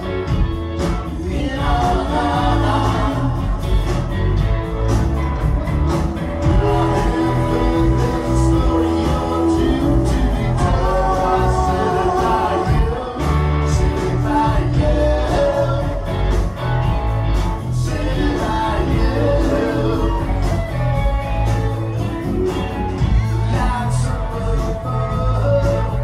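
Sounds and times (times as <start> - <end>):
live rock band playing: 0.0 - 26.0
person singing: 6.4 - 16.5, 17.8 - 21.5.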